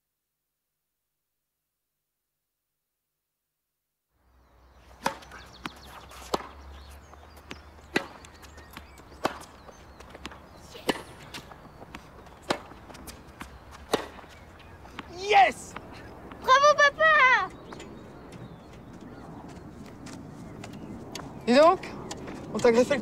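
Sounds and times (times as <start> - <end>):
racket striking tennis ball: 4.9 - 15.1.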